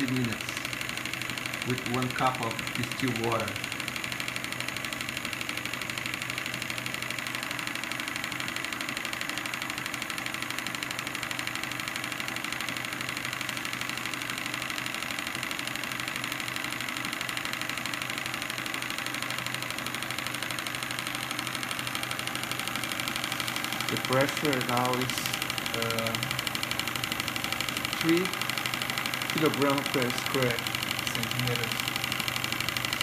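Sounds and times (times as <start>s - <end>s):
model steam engine beating: 0.0s - 3.9s, 16.5s - 33.0s.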